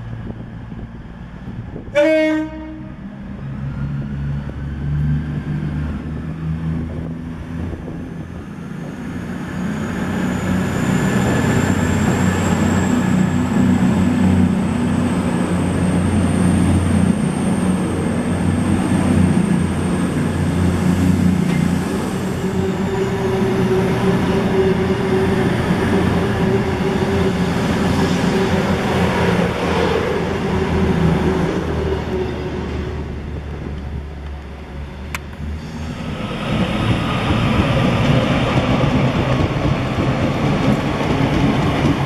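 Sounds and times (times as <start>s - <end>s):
diesel train passing on rails: 0.0s - 42.0s
train horn blast: 1.9s - 3.1s.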